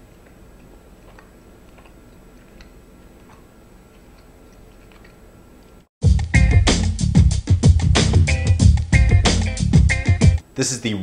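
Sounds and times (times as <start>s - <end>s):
man chewing softly: 0.0s - 5.9s.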